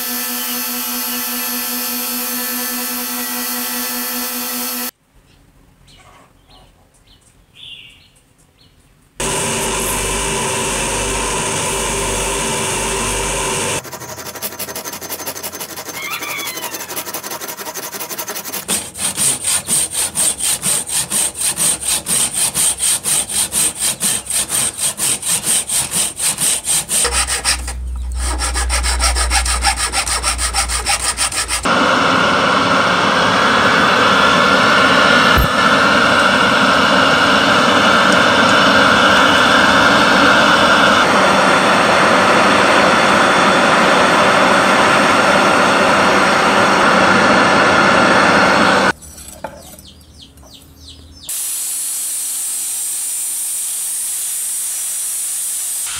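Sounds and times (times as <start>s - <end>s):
hand saw cutting wood: 0.0s - 4.9s, 9.2s - 31.8s, 35.4s - 35.6s
loud rushing hiss: 9.2s - 13.8s, 51.3s - 55.9s.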